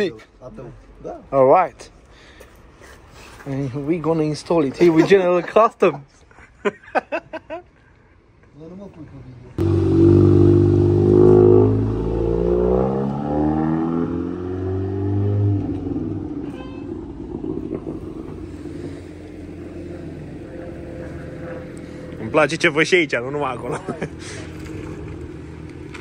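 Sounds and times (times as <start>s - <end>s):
quiet street noise: 0.0s - 26.0s
car engine accelerating: 9.6s - 26.0s.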